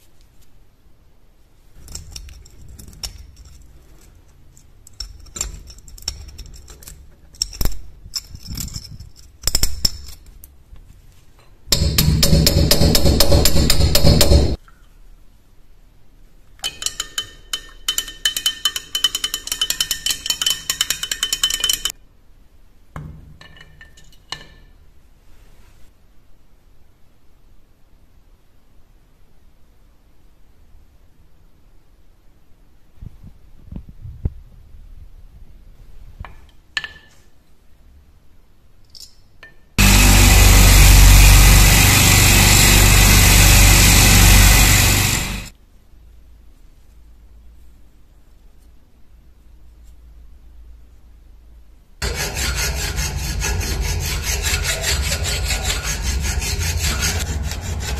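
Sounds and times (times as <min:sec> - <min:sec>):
rod clinking against glass jar: 0:16.6 - 0:21.9
electric motor hum: 0:39.8 - 0:45.5, 0:52.0 - 0:57.9
knife rubbing on buffing wheel: 0:52.0 - 0:57.9.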